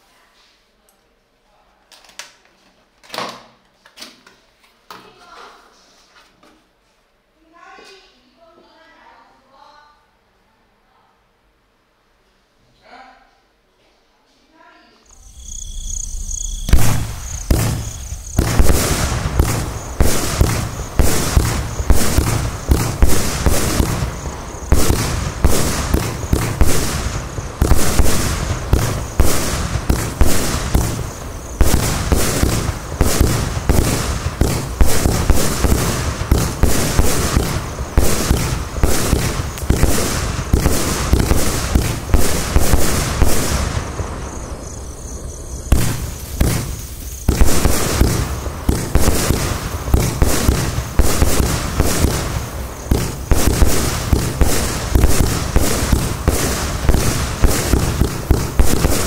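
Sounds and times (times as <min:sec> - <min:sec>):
fireworks star bursts: 0:15.1 - 0:59.0
fireworks launch thumps: 0:15.2 - 0:44.4, 0:45.7 - 0:59.0.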